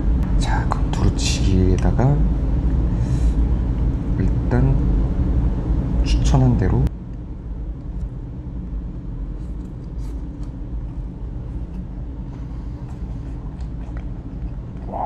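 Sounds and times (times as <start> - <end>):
low background rumble: 0.0 - 15.0
person chewing food: 9.8 - 15.0.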